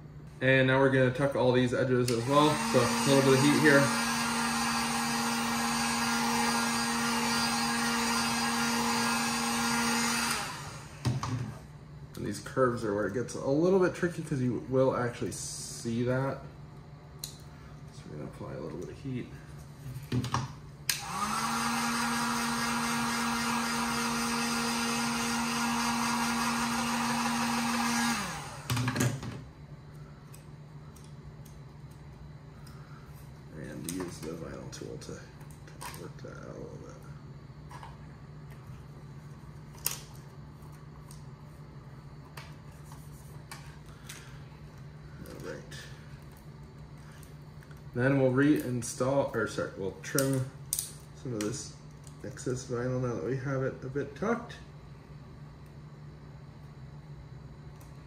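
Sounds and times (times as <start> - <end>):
heat gun fan humming: 0.0 - 58.0
heat gun humming and blowing air: 1.3 - 11.7, 20.8 - 29.3.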